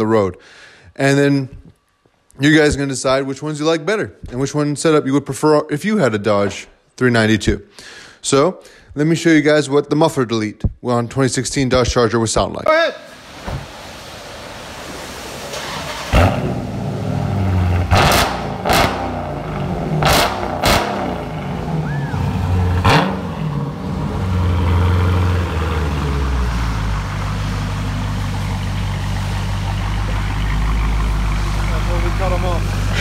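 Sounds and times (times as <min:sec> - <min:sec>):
car engine revving and idling: 0:14.3 - 0:33.0.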